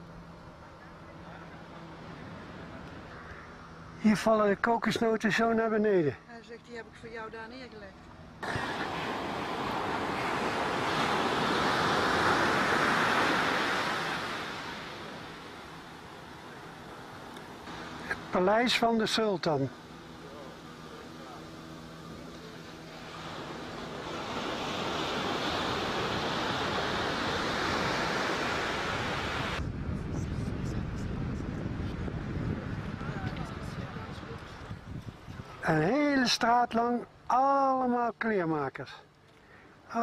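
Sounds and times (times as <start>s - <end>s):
waves breaking on beach: 8.4s - 29.6s
wind rushing on microphone: 23.1s - 35.8s.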